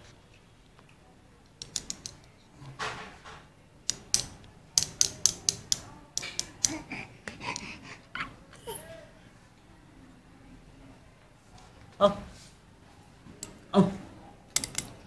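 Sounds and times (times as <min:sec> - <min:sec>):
sharp irregular clicks and taps: 0:00.8 - 0:02.4, 0:03.8 - 0:07.7, 0:14.5 - 0:15.0.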